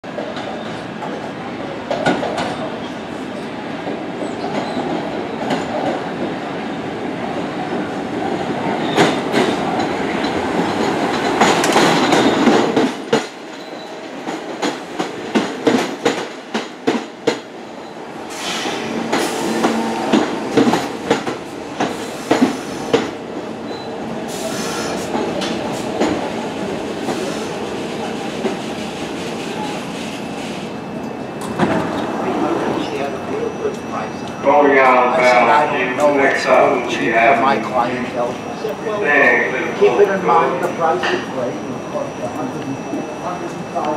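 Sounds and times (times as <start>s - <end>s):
subway train wheels clattering on rail: 0.0s - 43.9s
train brakes squealing: 13.5s - 14.1s, 17.8s - 20.4s, 23.6s - 25.1s, 29.4s - 34.5s, 37.6s - 43.9s.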